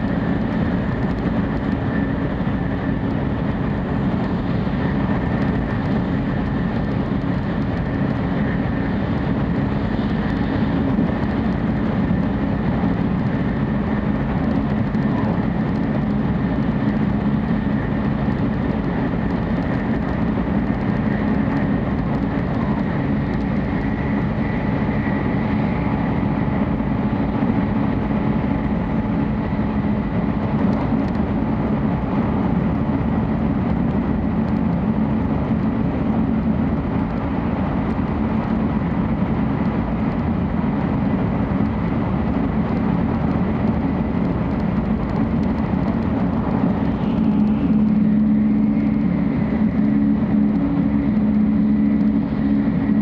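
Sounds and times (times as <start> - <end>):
train rumble inside carriage: 0.0 - 53.0
faint high whine: 46.6 - 53.0.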